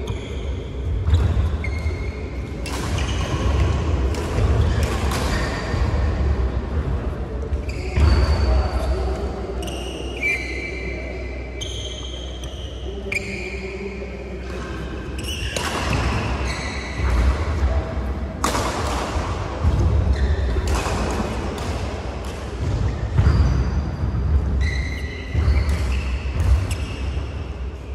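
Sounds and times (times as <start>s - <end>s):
shoes squeaking on court: 0.0s - 3.5s, 7.5s - 10.8s, 15.2s - 17.2s, 22.9s - 23.8s, 24.6s - 27.4s
low hum in echoing hall: 0.0s - 27.9s
racket hitting shuttlecock: 1.0s - 6.2s, 15.3s - 17.7s, 18.4s - 23.4s, 24.6s - 27.4s.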